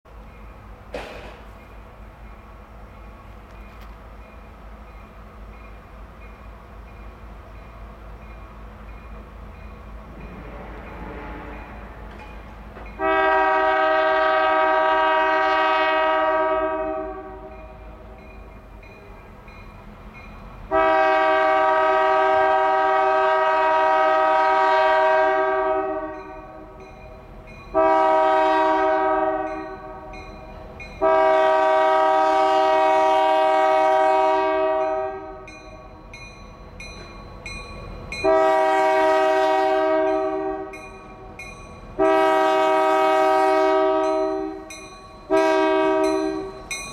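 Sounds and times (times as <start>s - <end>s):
locomotive and train rumble: 0.0s - 46.9s
locomotive air horn blasts: 10.3s - 12.1s, 12.9s - 17.7s, 20.7s - 26.7s, 27.7s - 30.1s, 31.0s - 35.5s, 38.2s - 40.8s, 42.0s - 44.7s, 45.3s - 46.7s.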